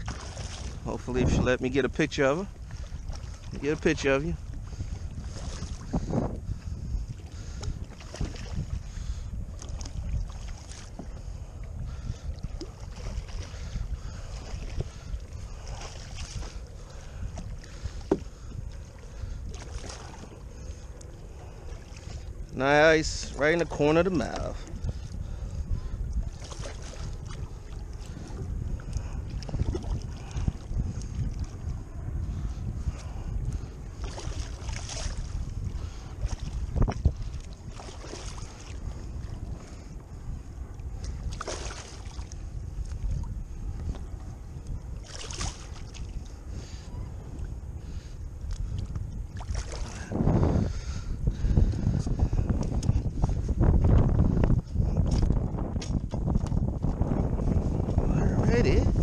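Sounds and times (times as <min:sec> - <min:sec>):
water sloshing around kayak: 0:00.0 - 0:59.0
wind rumbling on microphone: 0:00.0 - 0:59.0
fish splashing in water: 0:41.3 - 0:42.3.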